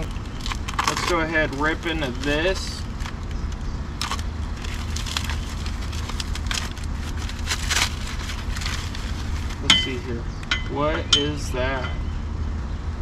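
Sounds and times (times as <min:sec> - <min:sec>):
plastic wrap crinkling and tearing: 0:00.0 - 0:09.7
low background rumble: 0:00.0 - 0:13.0.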